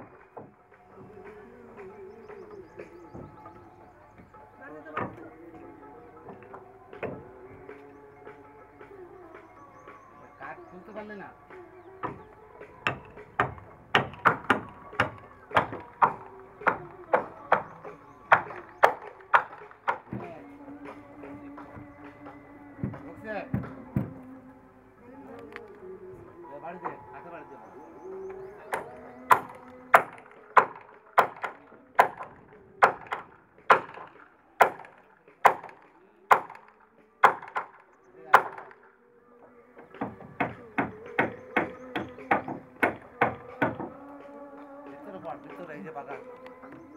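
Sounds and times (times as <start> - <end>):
hammer blows on wooden hull: 28.6 - 38.8, 39.8 - 44.1.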